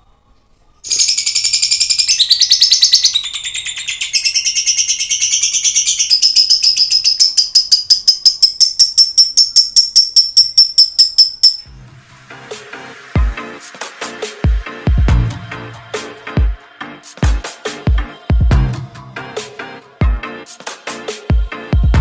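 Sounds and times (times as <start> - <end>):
lovebird chattering song: 0.8 - 11.7.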